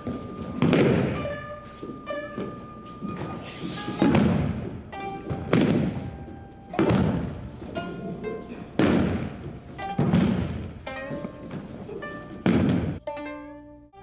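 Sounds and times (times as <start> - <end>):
background music with held tones: 0.0 - 14.0
heavy thuds on a mat: 3.1 - 7.5, 8.8 - 11.6, 12.4 - 13.0.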